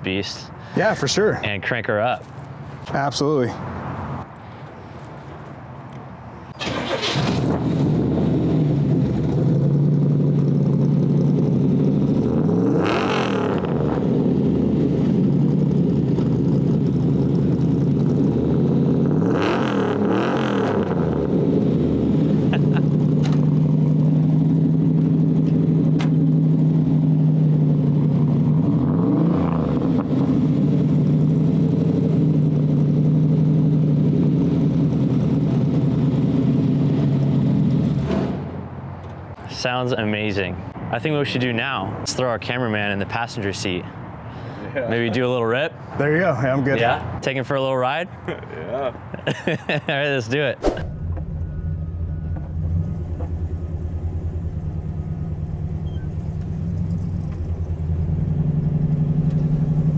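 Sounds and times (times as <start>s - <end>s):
engine cranking: 6.6s - 7.6s
engine revving: 6.6s - 38.6s
engine idling: 8.8s - 12.2s, 50.8s - 59.9s.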